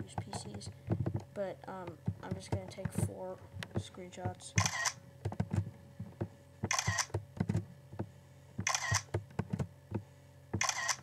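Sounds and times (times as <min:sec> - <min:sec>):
camera shutter sound: 0:04.6 - 0:05.0, 0:06.7 - 0:07.1, 0:08.6 - 0:09.1, 0:10.6 - 0:11.0.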